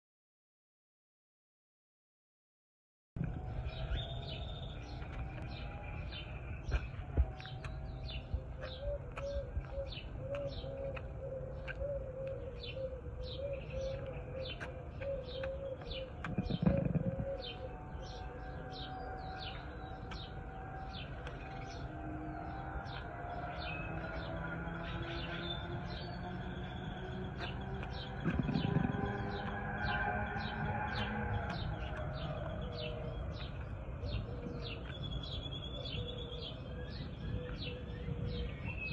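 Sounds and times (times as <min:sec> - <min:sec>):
small birds chirping: 0:03.2 - 0:38.9.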